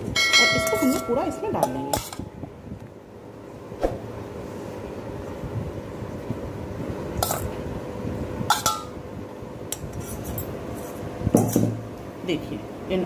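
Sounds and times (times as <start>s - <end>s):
low steady hum: 0.0s - 13.0s
metal bowl clinking against glass: 0.2s - 2.2s, 8.5s - 8.9s.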